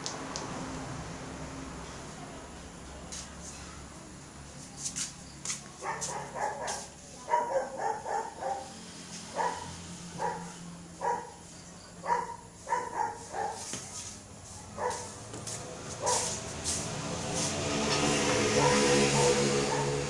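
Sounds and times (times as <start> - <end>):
animal barking: 5.8 - 8.7, 9.3 - 11.4, 12.0 - 13.6, 14.8 - 15.1, 16.0 - 16.4, 18.5 - 20.0.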